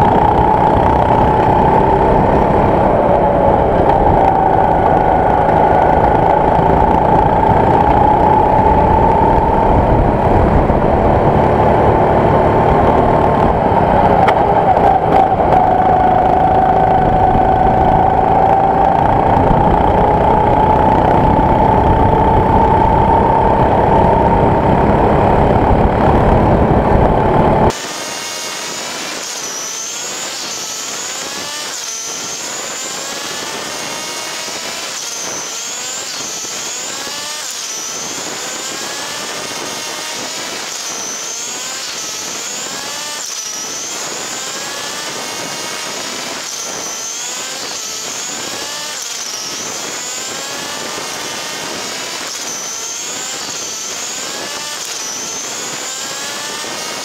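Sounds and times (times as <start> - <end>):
go-kart engine running: 0.0 - 57.0.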